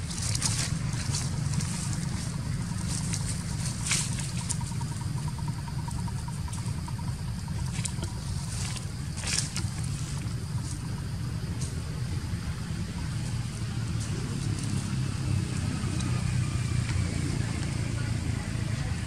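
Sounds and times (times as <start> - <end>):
dry leaves crackling: 0.0 - 5.5, 7.5 - 12.0
steady low rumble: 0.0 - 19.0.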